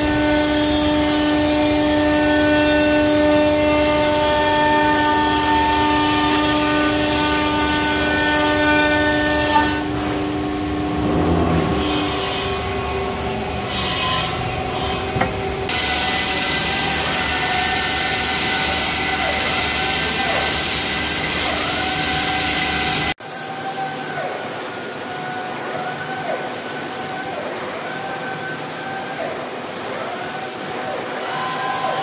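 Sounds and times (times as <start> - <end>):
woodworking machinery whining: 0.0 - 23.1.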